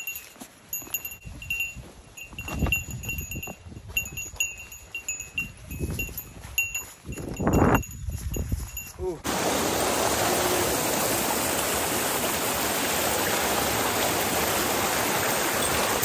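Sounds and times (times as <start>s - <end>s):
small metal bell jingling: 0.0s - 9.2s, 15.3s - 16.0s.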